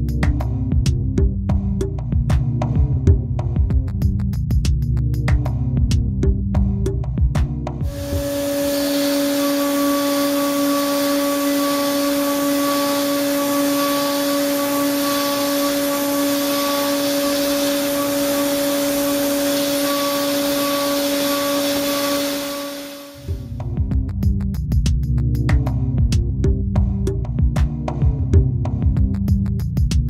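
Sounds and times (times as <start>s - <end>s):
milling spindle whine: 7.8s - 23.4s
faint high-pitched note: 7.9s - 23.4s.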